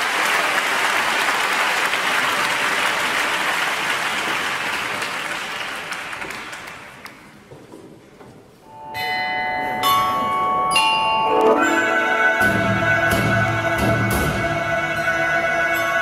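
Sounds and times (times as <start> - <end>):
audience applause: 0.0 - 7.4.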